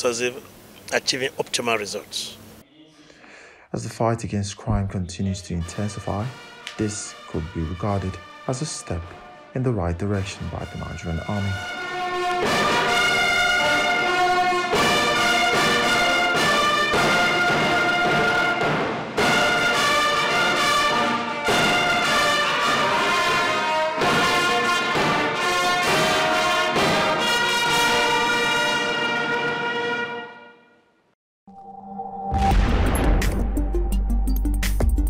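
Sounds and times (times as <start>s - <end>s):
brass band music: 4.8s - 30.7s.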